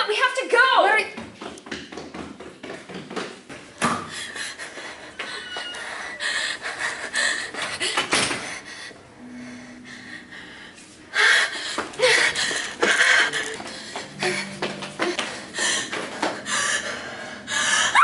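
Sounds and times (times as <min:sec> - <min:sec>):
woman panting and gasping: 0:04.0 - 0:18.0.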